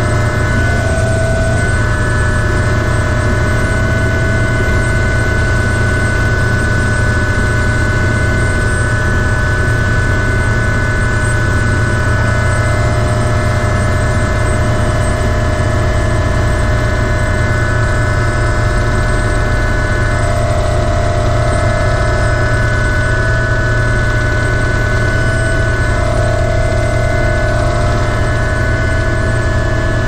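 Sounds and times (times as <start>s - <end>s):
heavy low rumble: 0.0s - 5.3s, 24.4s - 30.0s
helicopter turbine whine: 0.0s - 30.0s.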